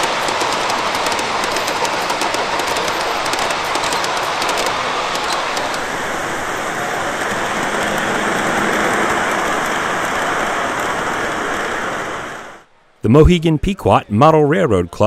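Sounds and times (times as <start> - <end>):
model train wheels clicking: 0.0 - 12.2
model train rushing rumble: 0.0 - 12.7.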